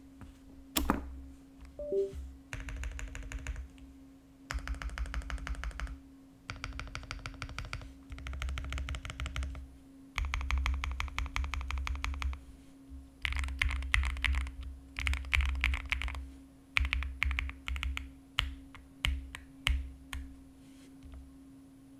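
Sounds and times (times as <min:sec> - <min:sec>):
faint steady hum: 0:00.0 - 0:21.9
mechanical keyboard typing: 0:01.8 - 0:03.7, 0:04.5 - 0:09.6, 0:10.2 - 0:12.4, 0:13.2 - 0:16.2, 0:16.8 - 0:19.8.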